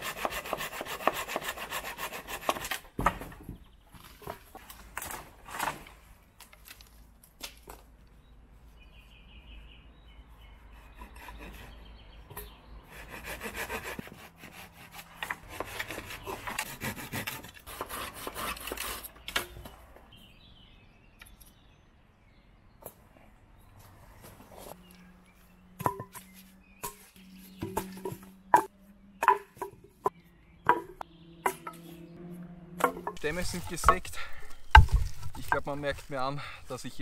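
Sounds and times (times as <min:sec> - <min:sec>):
hand saw cutting wood: 0:00.0 - 0:02.9, 0:10.8 - 0:12.0, 0:12.9 - 0:19.2.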